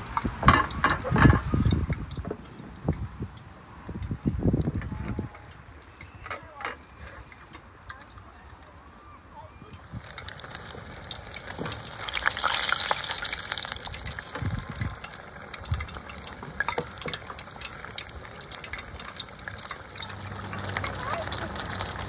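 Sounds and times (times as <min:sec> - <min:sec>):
food deep-frying in oil: 0:00.0 - 0:02.3, 0:09.6 - 0:22.0.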